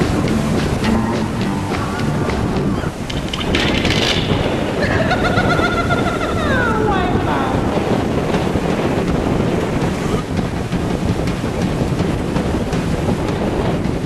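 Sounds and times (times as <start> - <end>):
breaking surf roar: 0.0 - 14.0
wind buffeting microphone: 0.0 - 14.0.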